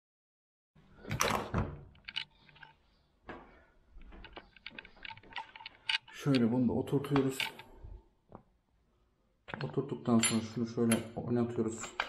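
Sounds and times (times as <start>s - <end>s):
metal clicks and knocks: 1.1s - 2.8s, 4.0s - 7.8s.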